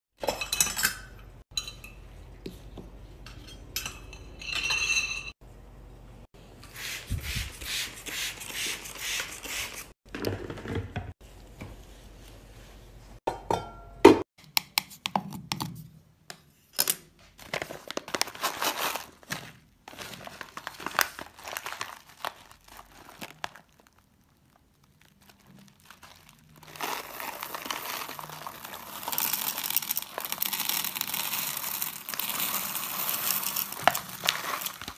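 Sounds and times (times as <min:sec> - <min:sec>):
glass jar clinks and taps: 0:13.3 - 0:14.0
wax beads poured rattling: 0:21.2 - 0:34.9.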